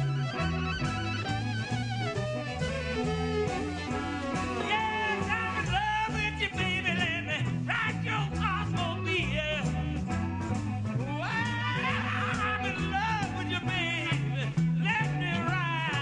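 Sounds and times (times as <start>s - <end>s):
bowed fiddle with sliding notes: 0.0s - 5.6s
button accordion: 0.0s - 7.6s
bass: 0.0s - 16.0s
drums keeping a steady beat: 0.0s - 16.0s.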